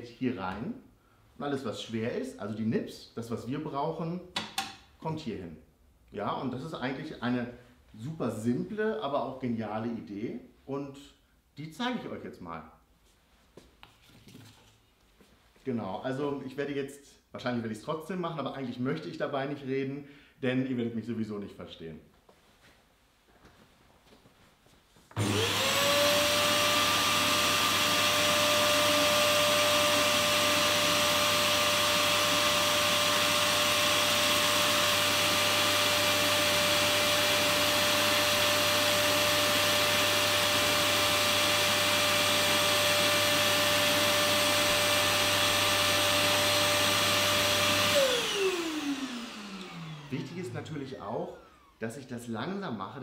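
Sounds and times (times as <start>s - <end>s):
vacuum cleaner whining: 25.1s - 51.8s.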